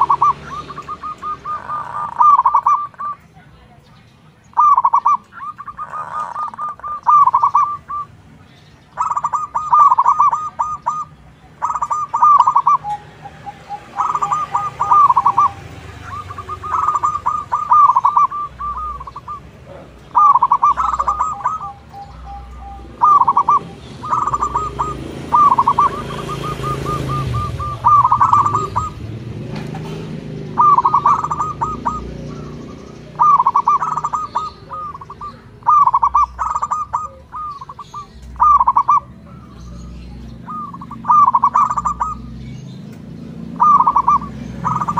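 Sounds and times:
doves cooing: 0.0 - 3.4, 4.4 - 44.9.

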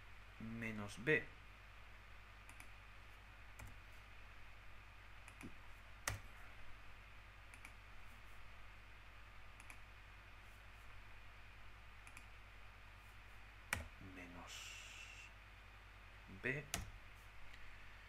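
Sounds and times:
faint computer clicks: 2.4 - 2.7, 12.0 - 12.3.

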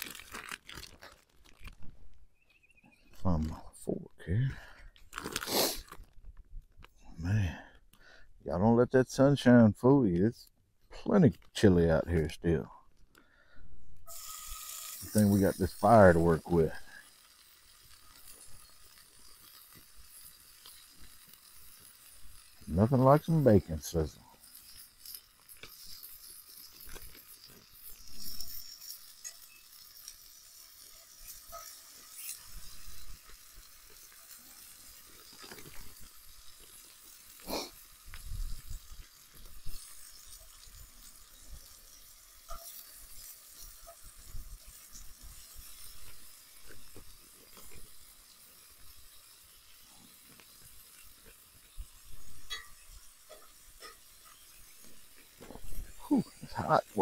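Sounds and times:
bacon sizzling in a skillet: 0.0 - 3.4, 5.1 - 6.0, 14.0 - 57.0
pops and clicks: 0.0 - 3.4.

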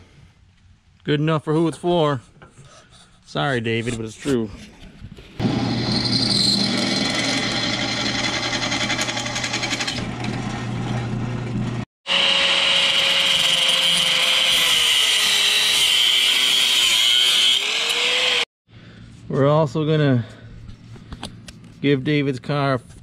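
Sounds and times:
drill press grinding through steel: 5.4 - 18.4
angle grinder cutting steel: 5.4 - 18.5.

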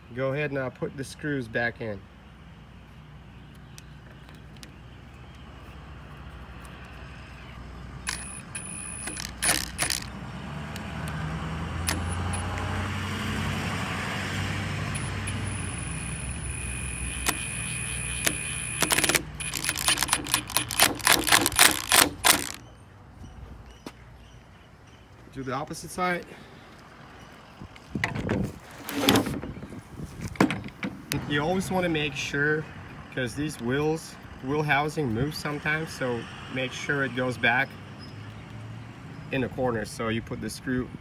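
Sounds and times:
power drill motor whine: 8.1 - 10.1, 15.0 - 22.6
sharp metallic clicks and knocks: 8.1 - 11.2, 11.8 - 12.7, 17.1 - 22.6.

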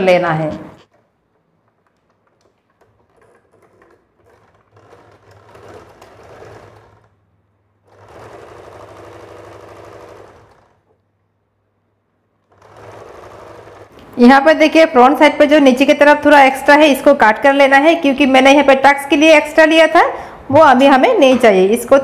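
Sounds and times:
sewing machine stitching: 1.9 - 7.2, 7.8 - 11.0, 12.4 - 14.0.

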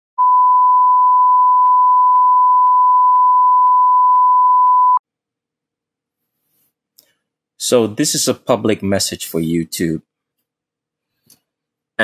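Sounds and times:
steady test tone beep: 0.2 - 5.0.

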